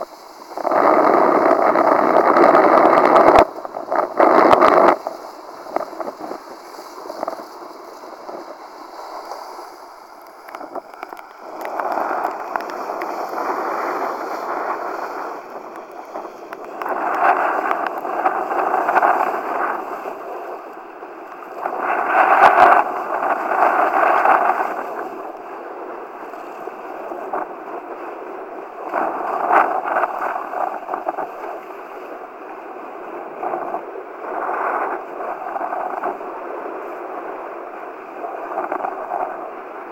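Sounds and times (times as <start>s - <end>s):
water rushing and splashing: 0.0s - 25.5s
strong wind: 0.0s - 39.9s.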